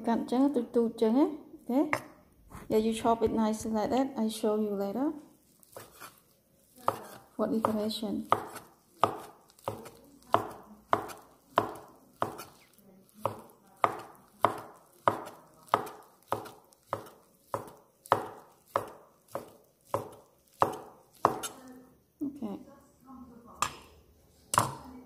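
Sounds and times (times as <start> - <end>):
knife chopping on wooden board: 5.6 - 6.2, 6.8 - 21.6.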